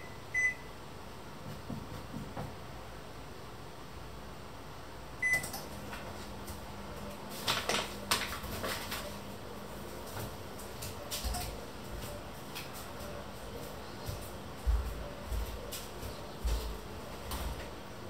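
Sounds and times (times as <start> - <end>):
appliance beep: 0.0 - 0.7, 5.2 - 5.5
appliance low hum: 0.0 - 18.0.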